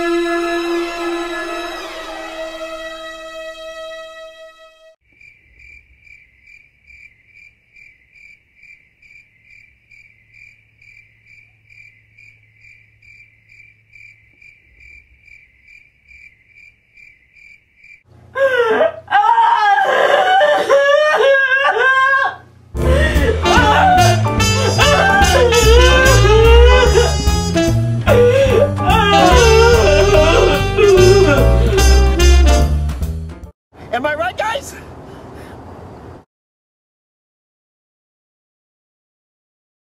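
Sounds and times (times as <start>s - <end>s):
held musical note: 0.0s - 5.0s, 22.8s - 32.9s
crickets chirping: 5.1s - 18.1s
woman wailing: 18.3s - 27.4s, 28.0s - 32.2s.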